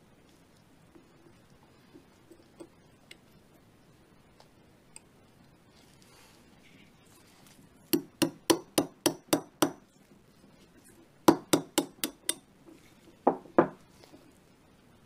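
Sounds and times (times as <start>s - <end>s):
hammer tapping metal punch: 8.0s - 9.8s, 11.3s - 12.4s.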